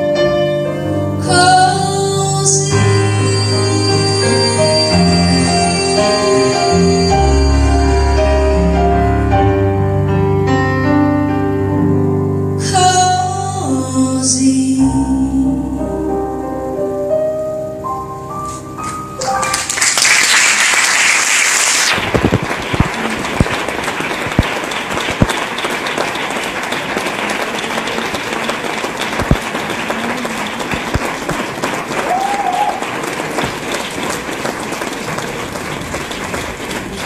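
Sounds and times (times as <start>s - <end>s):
piano notes: 0.0s - 20.8s
audience applause: 19.2s - 37.0s.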